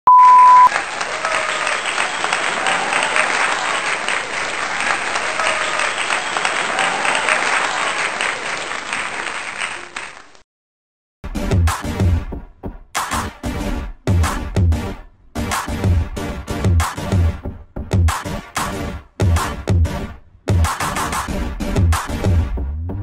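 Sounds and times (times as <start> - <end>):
crowd clapping: 0.5 - 10.4.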